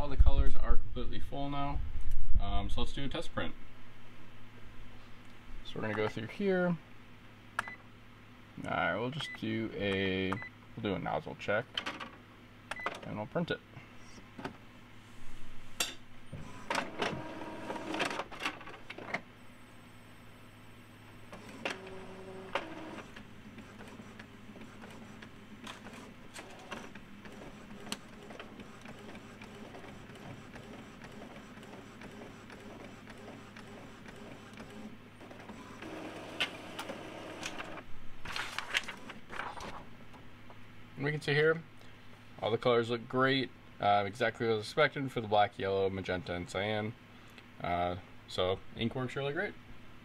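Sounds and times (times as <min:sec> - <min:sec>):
inkjet printer whirring: 0:16.3 - 0:19.1, 0:21.2 - 0:39.8
paper sheet feeding out: 0:35.4 - 0:39.8.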